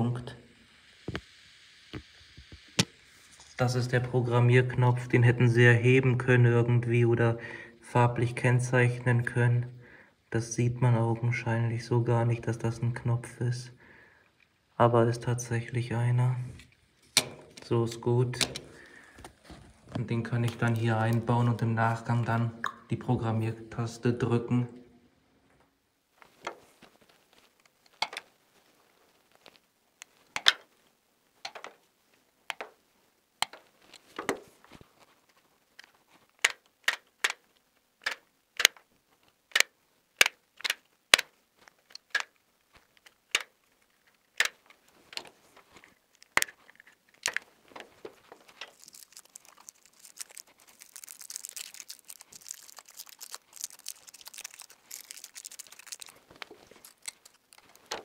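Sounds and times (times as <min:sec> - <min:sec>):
wires rustling: 0:16.5 - 0:22.9, 0:25.5 - 0:32.7, 0:33.4 - 0:58.0.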